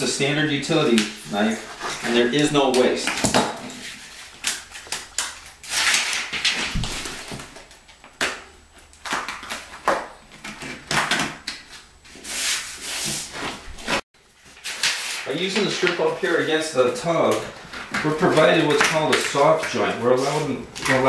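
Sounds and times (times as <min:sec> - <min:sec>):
rubbing and scraping of edge strip: 0:03.6 - 0:07.3, 0:11.6 - 0:14.0, 0:18.0 - 0:21.0.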